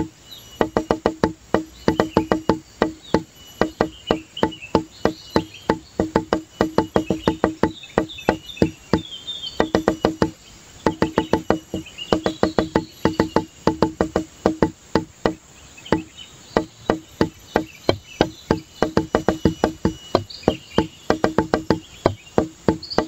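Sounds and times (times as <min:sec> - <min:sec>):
faint high chirping: 0:00.0 - 0:23.0
rapid wood-block knocking: 0:00.0 - 0:23.0.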